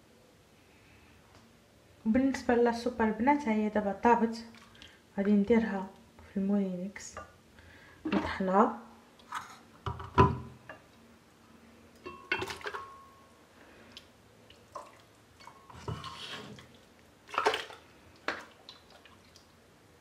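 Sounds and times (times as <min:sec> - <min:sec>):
soup splashing: 0:14.5 - 0:19.6.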